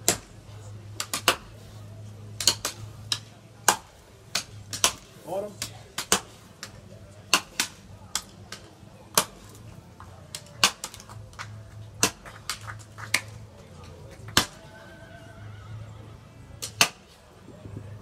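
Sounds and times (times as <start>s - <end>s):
axes chopping wood: 0.0s - 0.3s, 1.0s - 1.5s, 2.4s - 6.7s, 7.3s - 9.6s, 10.3s - 11.2s, 12.0s - 13.2s, 14.3s - 14.6s, 16.6s - 17.0s.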